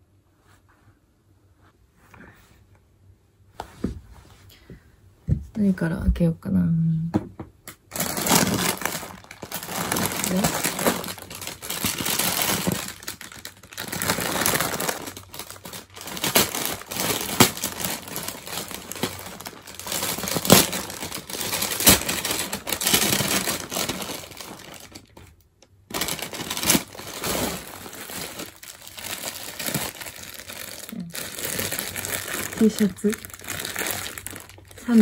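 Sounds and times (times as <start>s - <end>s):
plastic mailer bag crinkling: 7.9s - 35.0s.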